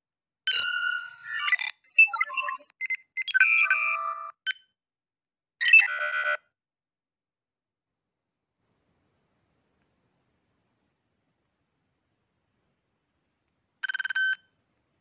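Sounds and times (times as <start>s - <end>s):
chirping computer beeps: 0.5s - 4.8s, 13.8s - 14.5s.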